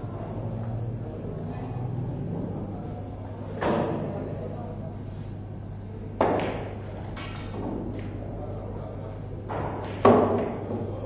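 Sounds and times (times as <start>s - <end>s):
steady low hum: 0.0s - 11.0s
cue striking cue ball: 6.2s - 8.2s, 9.5s - 10.9s
pool balls clicking: 6.2s - 8.2s, 9.4s - 11.0s.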